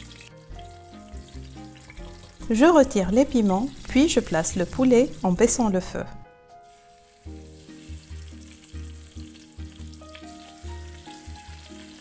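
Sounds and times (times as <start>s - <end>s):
light stirring in a pot: 0.0s - 5.9s
chicken sizzling in oil: 0.0s - 12.0s.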